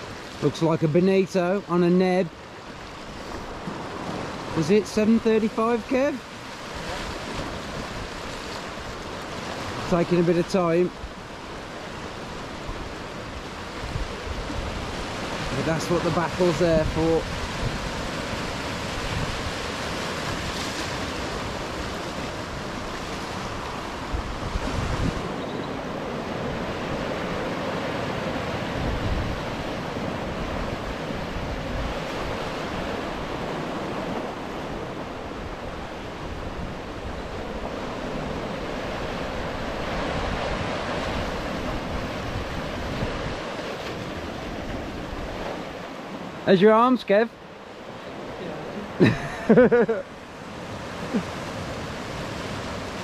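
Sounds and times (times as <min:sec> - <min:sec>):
surf washing over rocks: 0:00.0 - 0:53.0
wind buffeting microphone: 0:12.5 - 0:15.8, 0:16.8 - 0:45.8.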